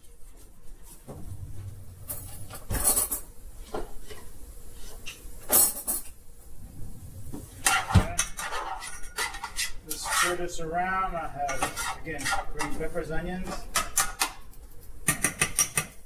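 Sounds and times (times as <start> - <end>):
saucepan and utensils clinking: 7.6 - 10.4.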